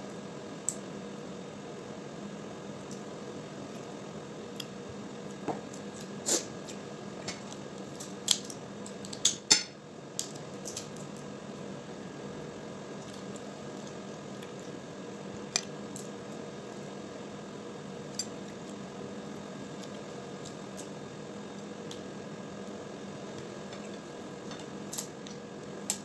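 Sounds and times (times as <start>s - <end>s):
steady background hum: 0.0s - 26.0s
crab shells cracking: 7.9s - 9.5s.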